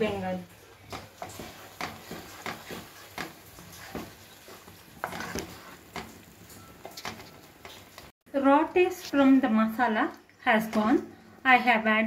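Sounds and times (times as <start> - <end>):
spatula scraping a pot: 0.9 - 8.0.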